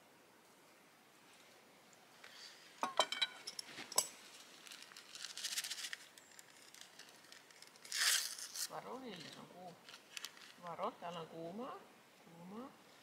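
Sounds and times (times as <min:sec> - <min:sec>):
metal cookware clinking: 0:02.8 - 0:04.1
rustle of handling: 0:03.4 - 0:11.4.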